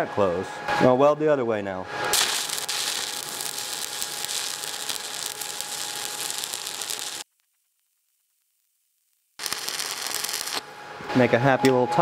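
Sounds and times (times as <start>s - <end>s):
welding arc crackling: 2.1s - 10.8s.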